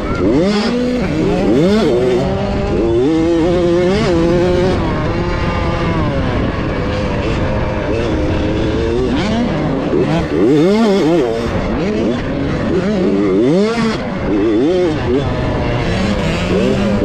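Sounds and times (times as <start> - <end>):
motocross bike engine accelerating: 0.0 - 17.0
wind and track noise: 0.0 - 17.0.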